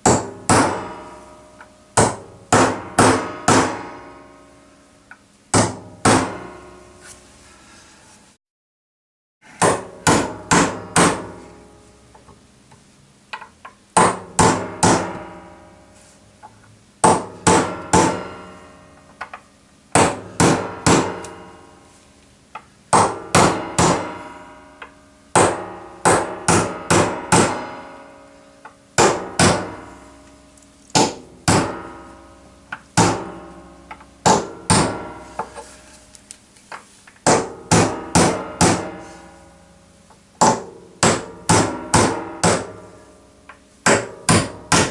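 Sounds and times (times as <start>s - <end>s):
hammer driving nails into wood: 2.0s - 3.8s, 9.6s - 11.3s, 17.0s - 18.2s, 19.9s - 21.4s, 22.9s - 24.1s, 25.4s - 27.6s, 30.9s - 31.9s, 34.2s - 35.6s, 40.4s - 42.8s, 43.8s - 44.9s.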